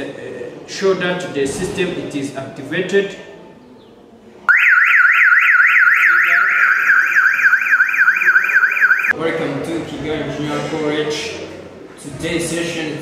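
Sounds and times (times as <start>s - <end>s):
car alarm siren wailing: 4.5s - 9.2s.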